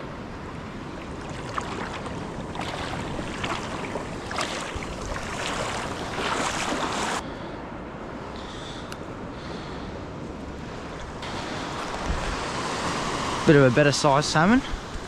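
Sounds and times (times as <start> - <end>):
surf water washing: 0.0 - 7.2, 10.6 - 15.0
fish thrashing in water: 1.0 - 7.2.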